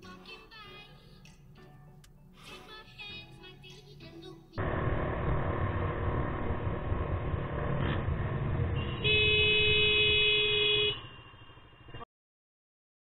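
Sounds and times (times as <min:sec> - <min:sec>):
wind and road rumble: 0:04.6 - 0:11.2
vehicle horn blast: 0:08.7 - 0:11.5.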